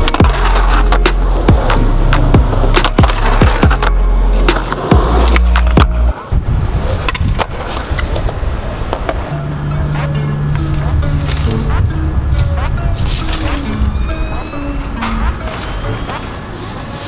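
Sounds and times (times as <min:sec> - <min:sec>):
background music with steady beat: 0:00.0 - 0:06.2
skateboard sliding off curb: 0:00.0 - 0:09.2
skateboard wheels rolling on asphalt: 0:00.0 - 0:14.0.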